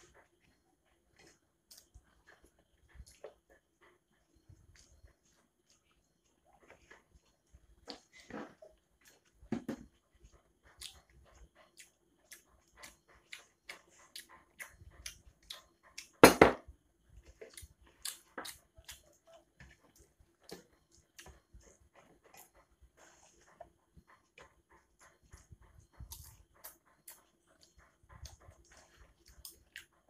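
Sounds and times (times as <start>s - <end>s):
person chewing wetly: 10.2s - 16.2s, 17.2s - 24.4s, 25.0s - 30.0s.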